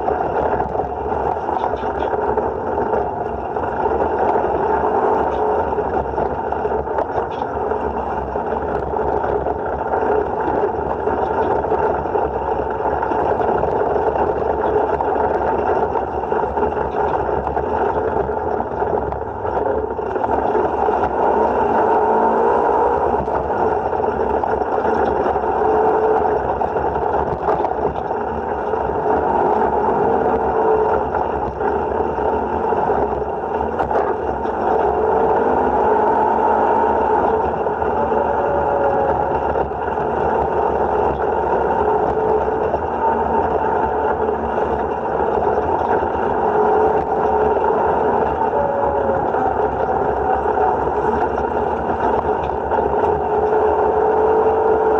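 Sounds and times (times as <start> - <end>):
vehicle engine revving: 0.0 - 54.9.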